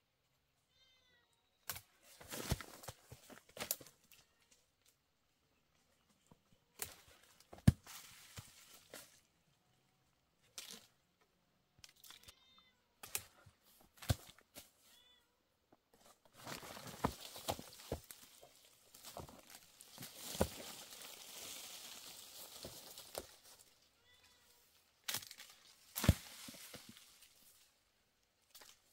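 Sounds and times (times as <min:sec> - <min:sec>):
cat meowing: 0:00.7 - 0:01.5, 0:12.1 - 0:12.9
rustling: 0:16.0 - 0:24.4.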